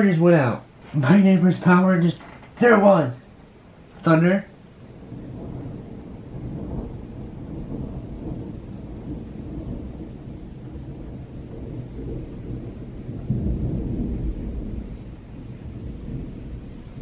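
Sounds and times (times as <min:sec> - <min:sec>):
rolling thunder: 0:04.7 - 0:17.0.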